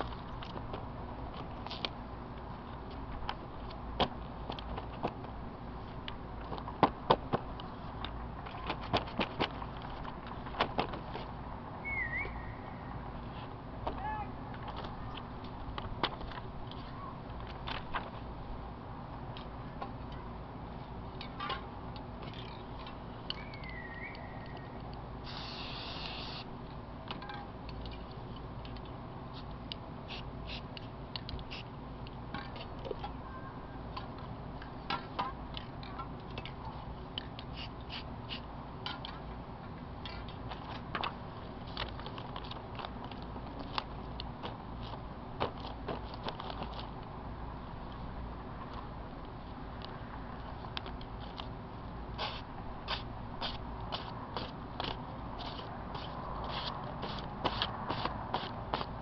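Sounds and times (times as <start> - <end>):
low steady hum: 0.0 - 59.0
spray can hissing: 25.2 - 26.5, 52.2 - 53.0.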